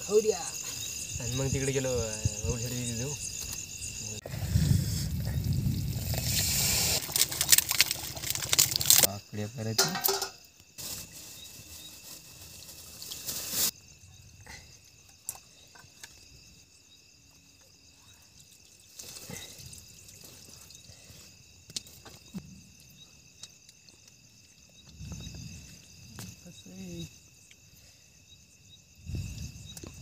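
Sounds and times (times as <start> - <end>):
crickets chirring: 0.0 - 30.0
burst of hissing noise: 4.2 - 7.3, 13.1 - 13.7
clicks of steel plates and utensils: 9.8 - 10.4.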